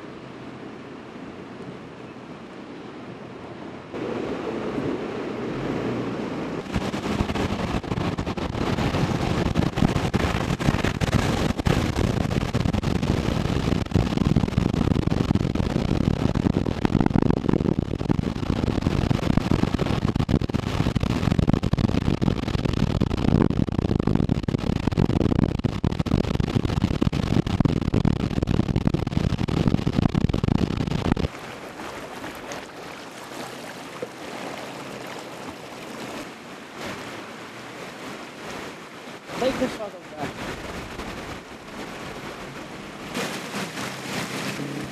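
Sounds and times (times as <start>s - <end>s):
rushing floodwater: 0.0s - 13.9s, 31.3s - 44.9s
wind buffeting microphone: 3.5s - 44.9s
water running along ditch: 31.1s - 44.9s.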